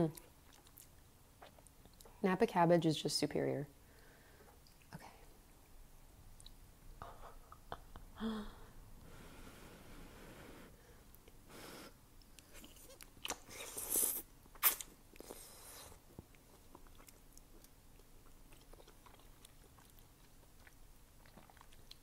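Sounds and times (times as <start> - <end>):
chewing with small clicks: 0.1 - 2.2, 3.9 - 4.9, 6.4 - 6.6, 12.2 - 13.7, 14.5 - 22.0
wet mouth noises: 0.1 - 2.2, 12.2 - 22.0.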